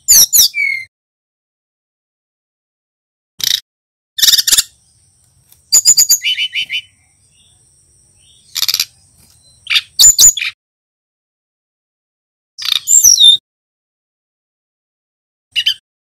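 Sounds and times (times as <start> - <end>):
bird chirping and trilling: 0.0 - 0.9, 3.4 - 3.6, 4.2 - 5.1, 5.7 - 7.6, 8.2 - 10.6, 12.6 - 13.4, 15.5 - 15.8.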